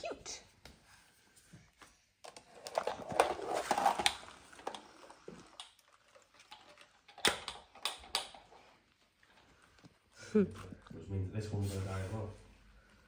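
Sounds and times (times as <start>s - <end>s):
plastic toys clattering: 2.2s - 9.8s.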